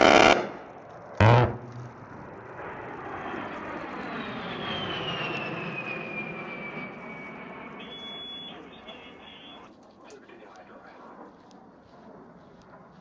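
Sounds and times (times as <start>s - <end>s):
rotary cannon buzzing burst: 0.0s - 2.6s
jet engine noise: 0.0s - 13.0s
high whine falling in pitch: 1.2s - 2.7s.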